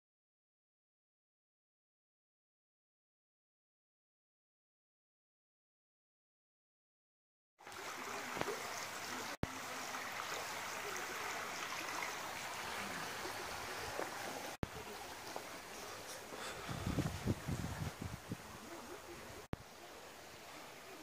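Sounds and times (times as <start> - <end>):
water rushing over stones: 7.6 - 17.9.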